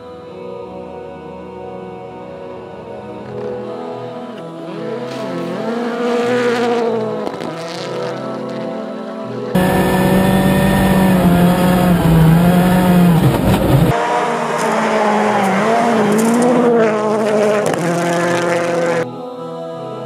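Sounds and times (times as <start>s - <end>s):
rally car engine revving: 4.7s - 8.7s, 9.5s - 19.1s.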